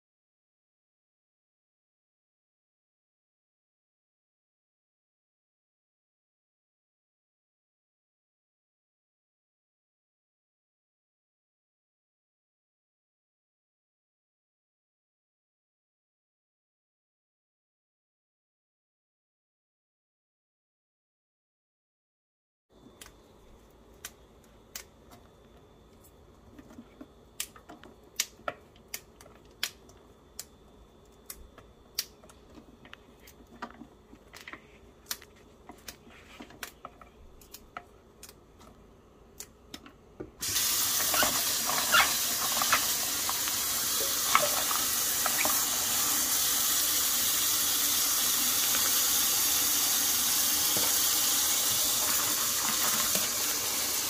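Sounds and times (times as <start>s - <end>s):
tap water running into sink: 40.4s - 54.0s.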